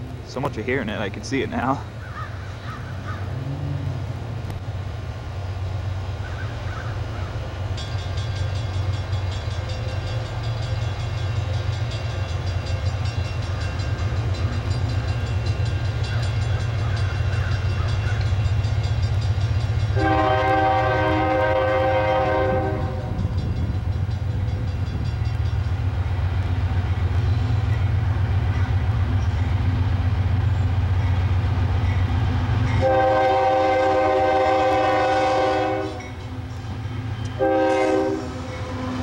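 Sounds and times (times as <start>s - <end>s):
locomotive engine rumbling: 0.0s - 39.0s
locomotive horn: 19.9s - 23.4s, 32.7s - 36.2s, 37.2s - 39.0s.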